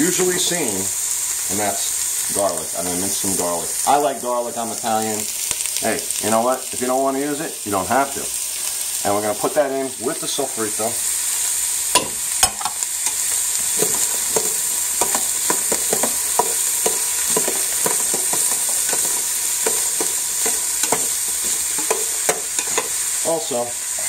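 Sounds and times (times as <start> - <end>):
vegetables sizzling in oil: 0.0 - 24.0
metal spoon scraping pot: 12.0 - 23.0.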